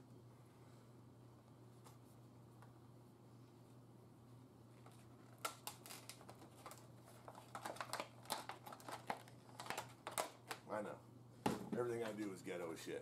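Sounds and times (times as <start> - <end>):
low steady hum: 0.0 - 13.0
plastic packaging crackling and snapping: 4.8 - 10.7.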